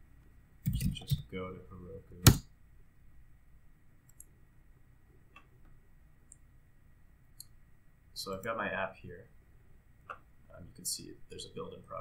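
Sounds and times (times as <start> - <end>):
computer mouse clicks: 4.0 - 4.3.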